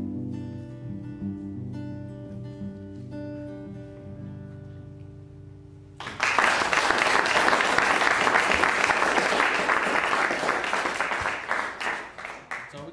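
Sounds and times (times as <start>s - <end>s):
acoustic guitar chord: 0.0s - 6.0s
audience applauding: 6.0s - 12.9s.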